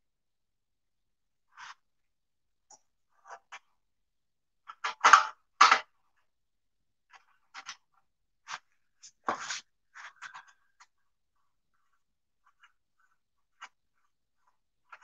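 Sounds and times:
hands scraping and knocking pump: 7.1 - 11.0.

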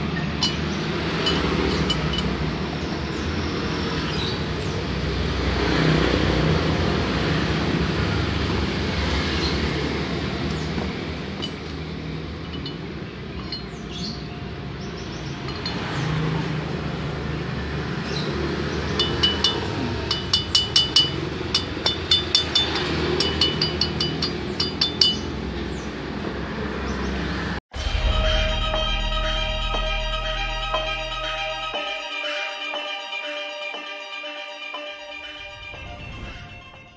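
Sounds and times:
steady low rumble: 27.7 - 31.8.

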